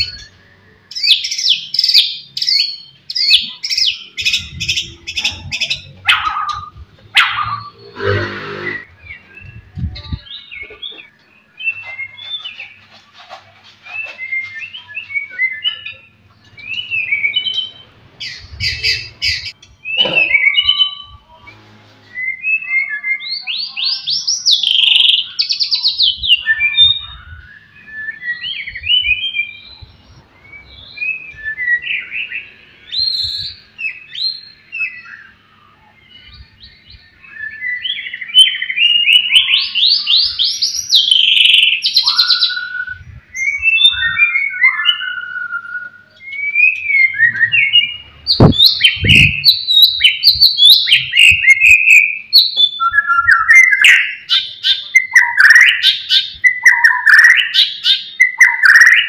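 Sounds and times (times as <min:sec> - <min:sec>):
songbird whistling and trilling: 0:13.9 - 0:21.2, 0:22.1 - 0:59.0.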